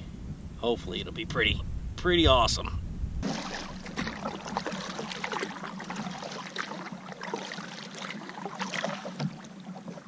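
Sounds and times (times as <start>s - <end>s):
paddle splashing in water: 3.2s - 10.0s.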